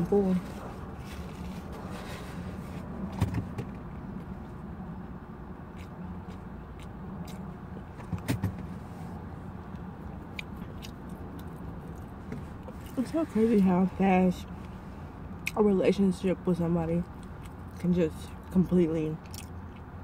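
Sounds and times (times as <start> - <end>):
person chewing: 5.6 - 7.9, 9.6 - 13.0, 17.1 - 17.8, 19.2 - 20.0.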